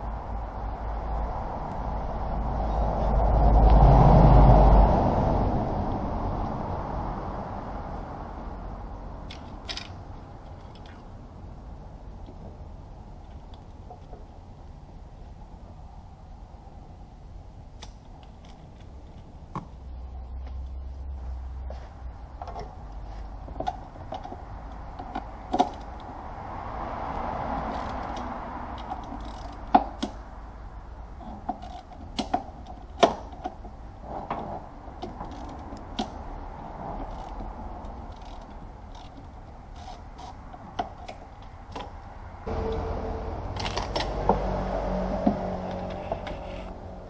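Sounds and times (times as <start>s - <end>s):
tools and parts clinking: 9.3s - 11.0s
low hum: 42.4s - 47.0s.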